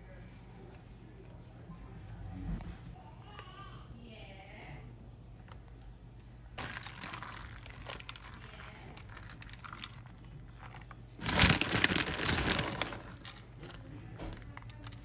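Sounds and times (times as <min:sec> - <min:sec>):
plastic bag crinkling: 0:06.6 - 0:15.0.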